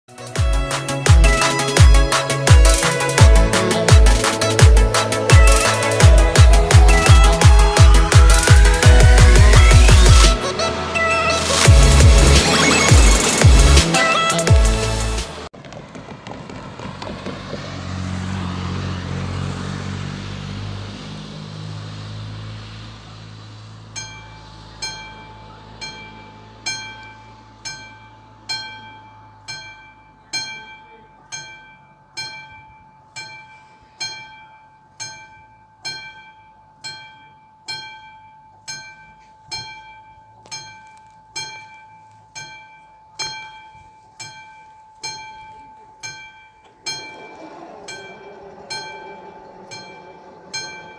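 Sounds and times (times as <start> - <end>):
car driving past: 2.3 - 28.5, 46.6 - 50.9
level crossing warning bell: 23.9 - 50.9.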